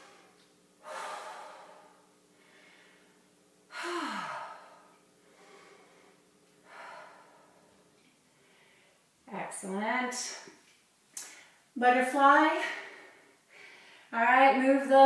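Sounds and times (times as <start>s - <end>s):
woman breathing deeply: 0.0s - 9.2s, 12.6s - 14.1s.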